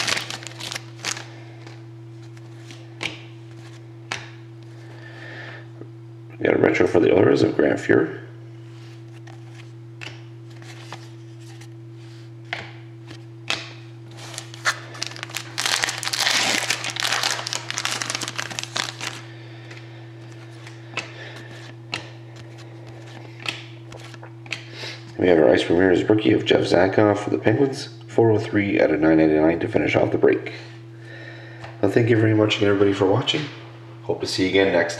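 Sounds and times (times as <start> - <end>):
scissors cutting wrapper: 0.0 - 1.3, 14.3 - 19.2
wrapper crinkling: 0.0 - 1.8, 14.1 - 19.3.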